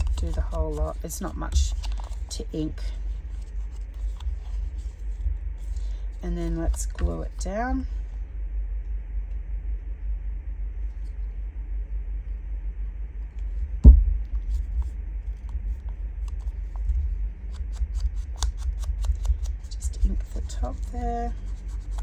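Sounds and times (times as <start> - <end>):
low rumble: 1.7 - 18.3
loud knock: 13.8 - 14.3.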